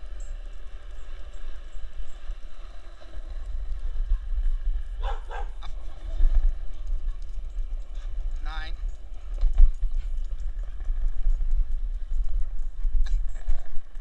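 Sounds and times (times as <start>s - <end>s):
skateboard wheels rolling on concrete: 0.0s - 14.0s
dog barking: 5.0s - 5.7s.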